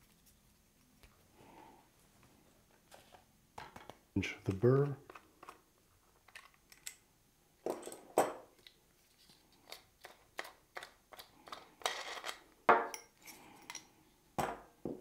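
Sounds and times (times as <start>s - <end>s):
metal parts clicking and clinking: 6.3s - 7.0s.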